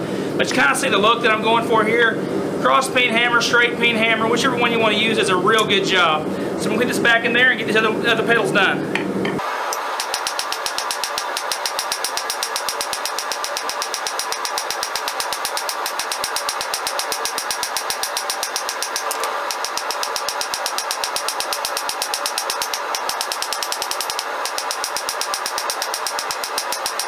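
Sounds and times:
hammer striking steel on anvil: 9.0 - 27.0.

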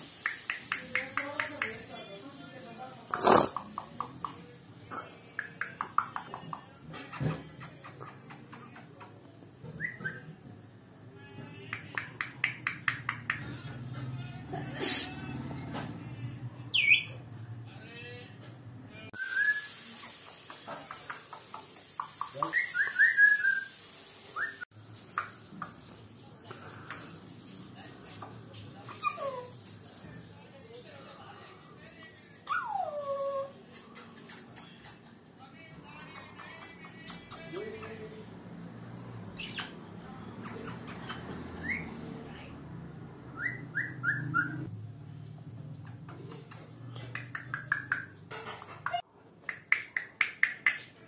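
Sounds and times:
parrot chirps: 9.7 - 10.3, 21.4 - 25.4, 43.3 - 44.7
parrot whistling: 9.7 - 10.3, 19.2 - 19.8, 22.4 - 24.6, 43.4 - 44.7.

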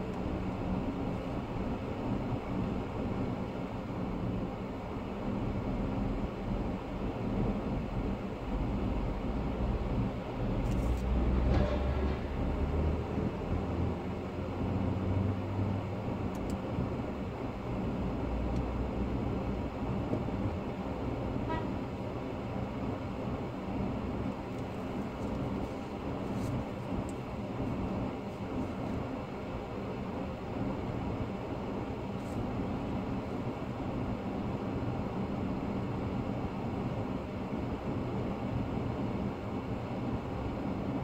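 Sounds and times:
tyre and engine rumble: 9.9 - 21.6.

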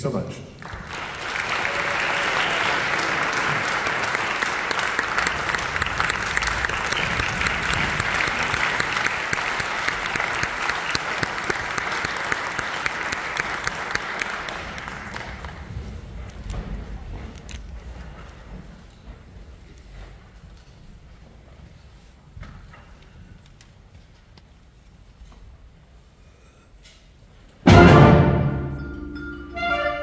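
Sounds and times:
audience applauding: 0.6 - 16.2.

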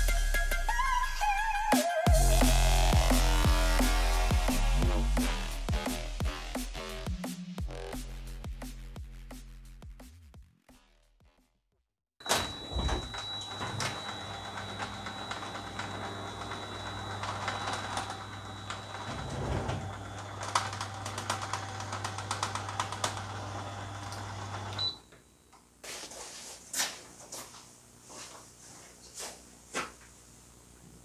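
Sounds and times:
garage door opener motor hum: 12.2 - 25.0.

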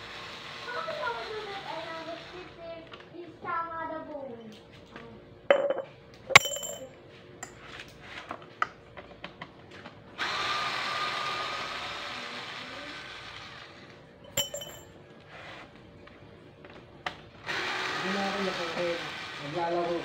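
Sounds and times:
metallic clink: 5.5 - 6.9, 14.3 - 14.9.

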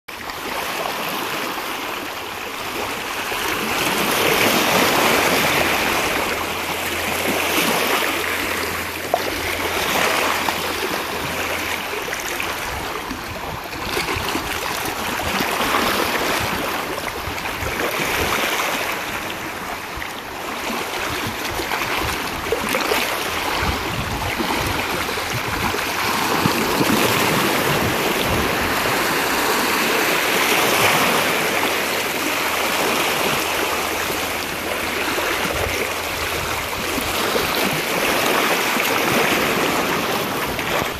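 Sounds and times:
small waves lapping: 0.1 - 40.9.

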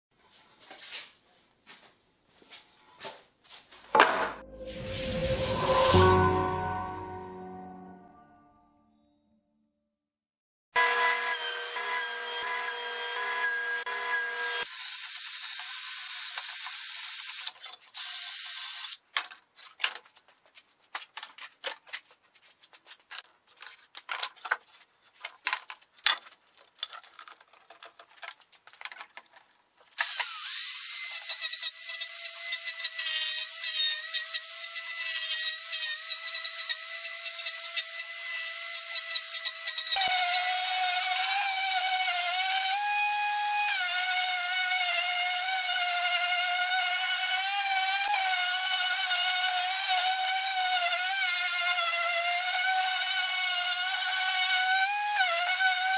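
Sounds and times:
angle grinder on wood: 30.0 - 55.9.

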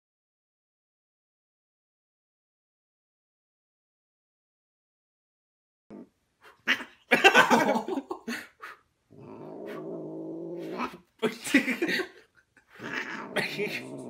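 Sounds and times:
cat growling low: 5.9 - 7.0, 9.1 - 11.1, 12.7 - 14.0
cat yowling: 12.8 - 14.0.

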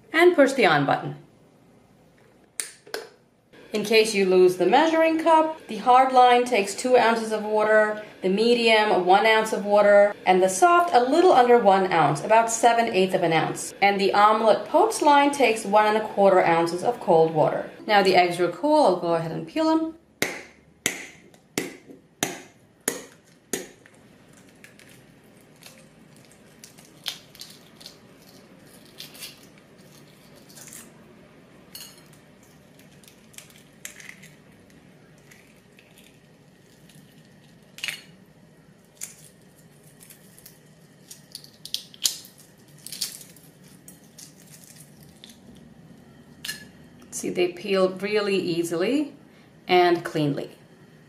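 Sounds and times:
eggshell crackling as peeled: 23.3 - 31.0, 32.3 - 37.8, 38.8 - 45.7
egg cracked against a plate: 40.4 - 43.3.

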